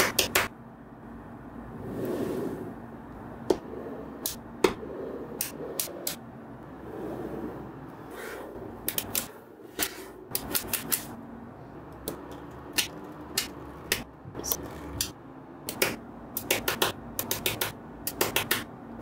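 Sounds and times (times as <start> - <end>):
magnetic balls clicking: 11.9 - 18.7.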